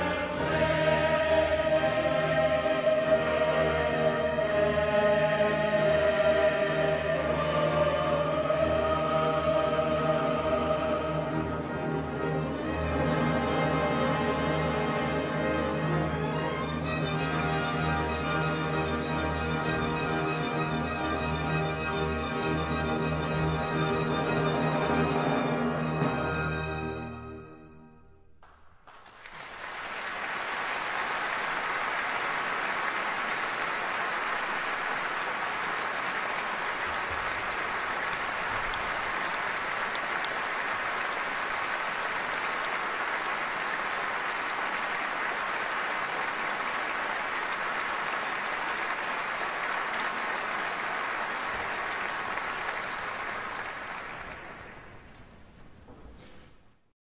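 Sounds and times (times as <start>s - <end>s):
audience applauding: 28.4s - 55.2s.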